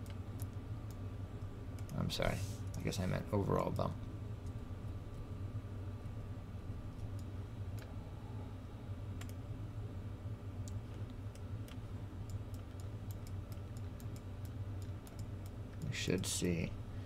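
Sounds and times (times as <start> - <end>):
low electrical hum: 0.0 - 17.0.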